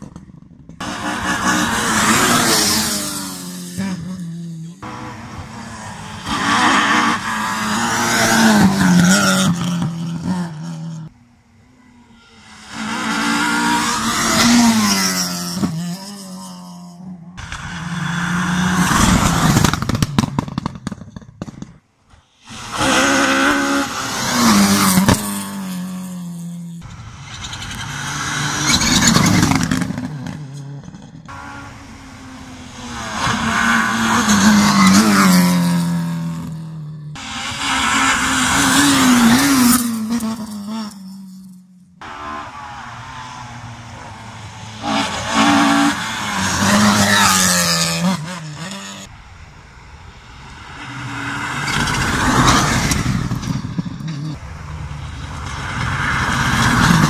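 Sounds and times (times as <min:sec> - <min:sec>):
rally cars passing at speed: 0:00.0 - 0:57.0
engines revving through gear changes: 0:42.0 - 0:49.1.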